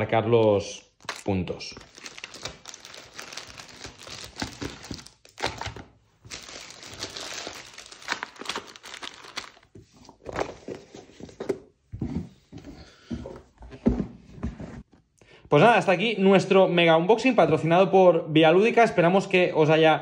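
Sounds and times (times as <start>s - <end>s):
plastic bags crinkling: 1.0s - 10.6s.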